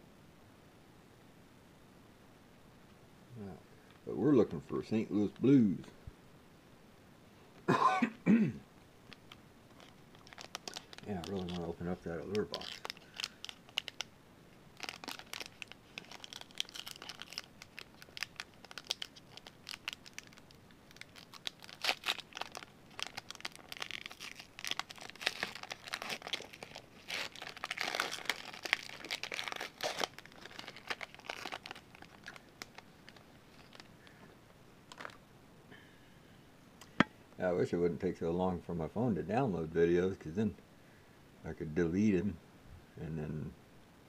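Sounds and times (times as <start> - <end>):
foil wrapper crinkling and tearing: 9.1 - 14.1, 14.7 - 34.2, 34.9 - 35.2.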